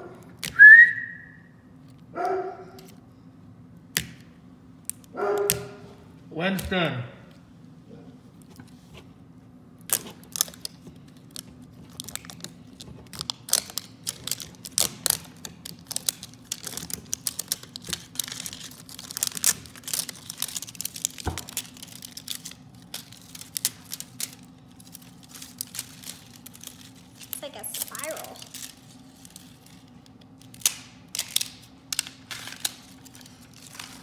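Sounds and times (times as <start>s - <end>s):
plastic wrapper peeling: 9.8s - 34.0s.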